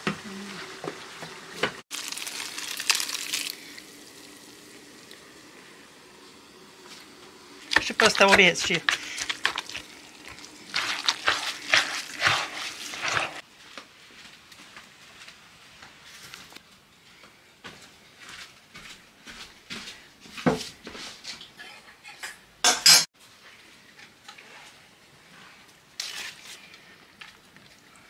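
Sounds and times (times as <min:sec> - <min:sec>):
meat filling mixed by hand: 0:01.9 - 0:03.8, 0:07.6 - 0:13.5, 0:25.3 - 0:27.9
dishware clattering: 0:22.2 - 0:23.1.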